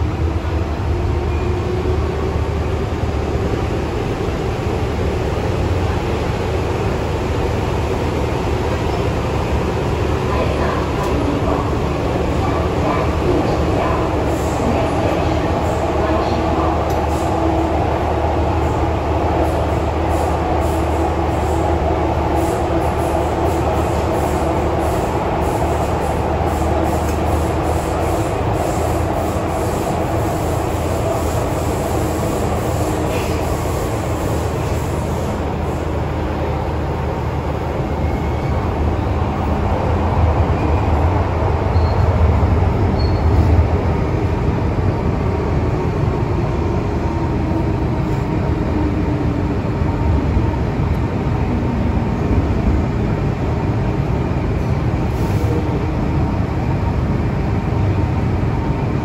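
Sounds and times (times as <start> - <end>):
train wheels and motors rumbling: 0.0 - 59.0.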